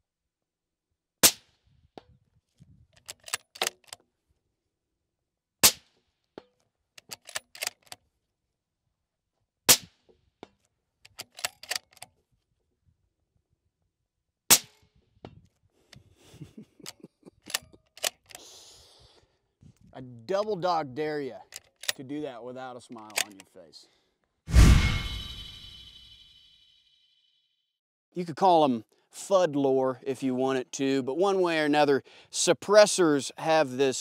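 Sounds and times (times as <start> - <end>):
rifle bolt metallic clicks: 3.0 - 4.0, 7.0 - 8.0, 11.0 - 12.2, 16.8 - 18.4, 21.5 - 22.0, 22.9 - 23.5.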